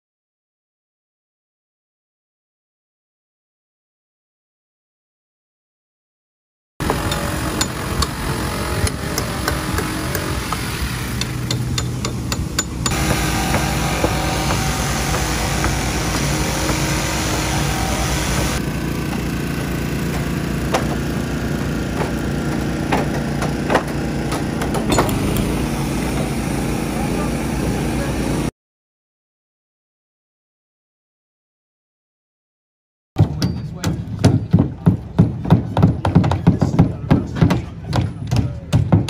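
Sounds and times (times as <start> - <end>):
motor running: 6.8 - 28.5
hammers knocking on wood: 8.8 - 17.5, 20.1 - 21.0, 21.6 - 25.2, 33.2 - 39.0.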